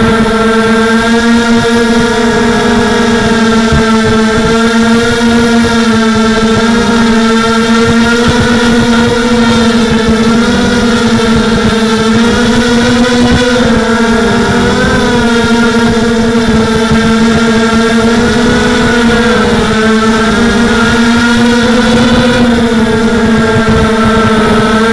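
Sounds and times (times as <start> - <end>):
quadcopter motors whining: 0.0 - 24.9.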